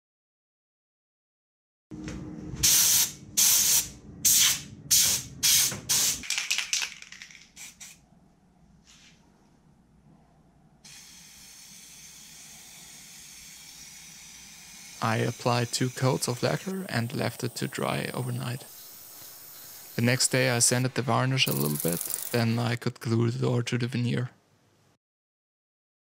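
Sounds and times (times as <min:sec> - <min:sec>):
spray hiss: 0:02.6 - 0:06.2, 0:10.8 - 0:22.6
spray can bursts: 0:02.6 - 0:08.0, 0:10.9 - 0:22.6.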